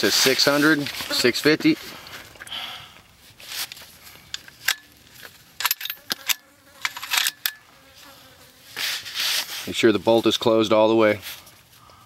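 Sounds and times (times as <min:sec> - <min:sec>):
rifle bolt clicks and rattles: 0:04.3 - 0:07.6.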